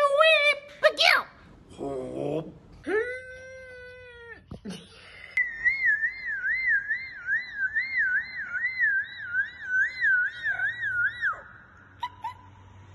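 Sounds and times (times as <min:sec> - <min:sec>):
high warbling siren tone: 0:05.4 - 0:11.8.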